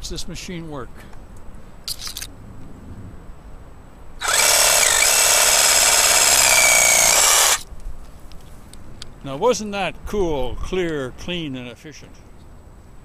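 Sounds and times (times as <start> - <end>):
reciprocating saw cutting branch: 4.2 - 7.6.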